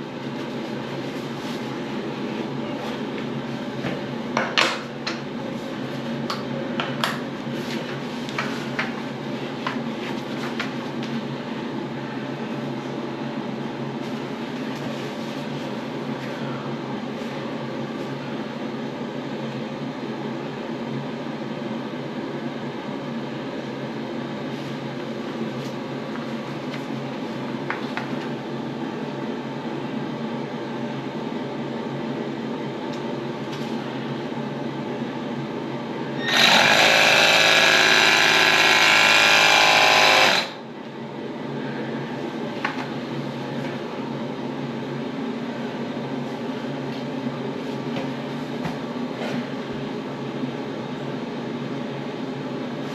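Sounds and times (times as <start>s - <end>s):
air pump running: 36.2s - 40.6s.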